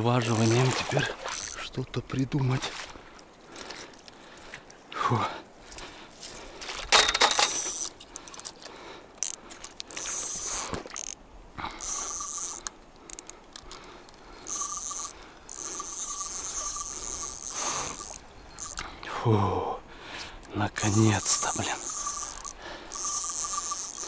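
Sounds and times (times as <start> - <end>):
spinning reel whirring: 0.2 - 1.6, 7.2 - 7.9, 9.2 - 11.2, 11.8 - 13.3, 14.1 - 18.8, 20.8 - 24.0.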